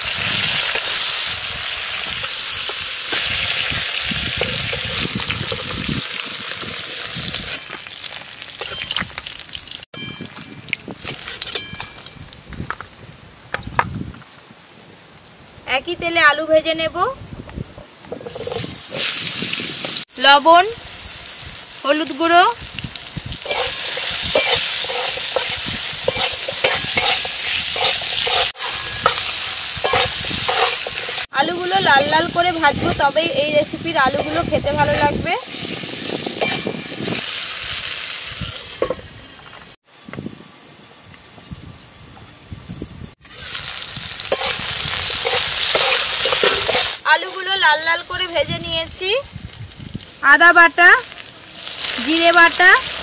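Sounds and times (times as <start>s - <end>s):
fish sizzling in hot oil: 0.0s - 9.9s, 18.2s - 40.0s, 43.1s - 53.0s
metal spatula scraping a pan: 18.2s - 19.2s, 23.4s - 32.9s, 44.2s - 47.6s.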